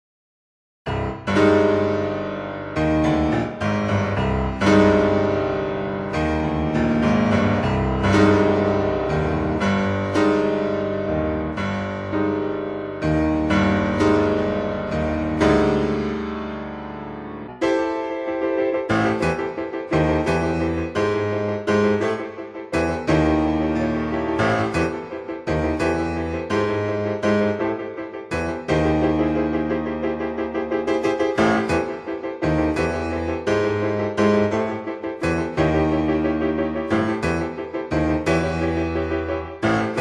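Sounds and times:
solo piano music: 0:00.9 - 0:40.0.

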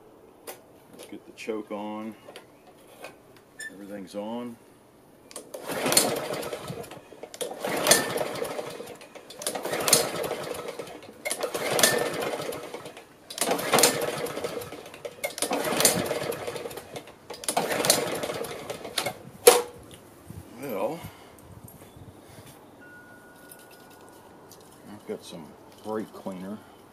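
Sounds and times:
lawn mower engine cranking: 0:05.3 - 0:19.8.

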